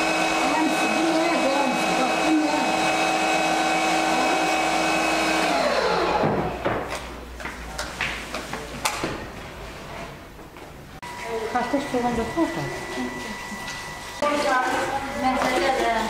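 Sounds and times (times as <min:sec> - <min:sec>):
electric appliance motor whining: 0:00.0 - 0:06.6, 0:11.1 - 0:15.8.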